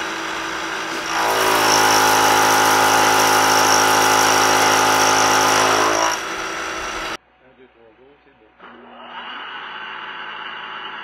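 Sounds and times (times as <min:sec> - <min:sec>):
milling cutter whine: 0:00.0 - 0:07.2
machine running hum: 0:00.0 - 0:07.4, 0:08.4 - 0:11.0.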